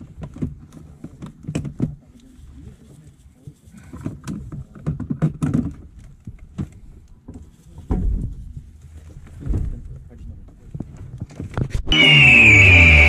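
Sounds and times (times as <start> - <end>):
plastic clicks and knocks: 0.0 - 2.0, 3.9 - 8.2.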